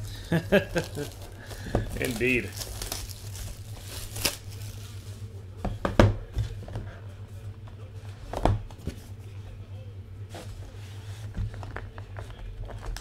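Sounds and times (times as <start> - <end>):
steady low hum: 0.0 - 13.0
cardboard rustling: 0.3 - 5.3.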